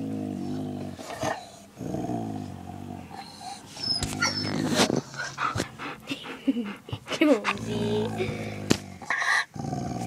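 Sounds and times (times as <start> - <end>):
dog growling low: 0.0 - 5.6, 7.3 - 10.0
high squeaks: 3.8 - 4.8.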